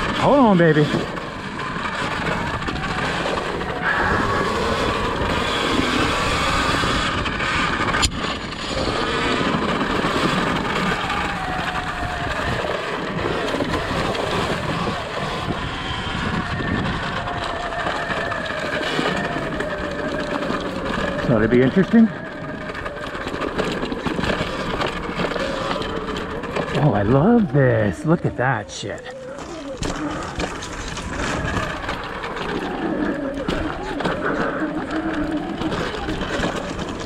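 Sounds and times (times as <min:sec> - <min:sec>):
faint electric motor whine: 0:00.0 - 0:37.0
tyre and trail noise: 0:00.0 - 0:37.0
wind on microphone: 0:02.1 - 0:20.2.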